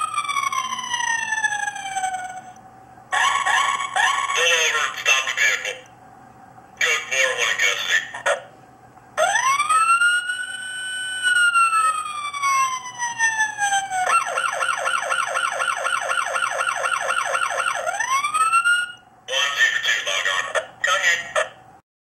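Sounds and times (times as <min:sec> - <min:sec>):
electronic police siren: 0:00.0 - 0:05.6, 0:09.2 - 0:19.1.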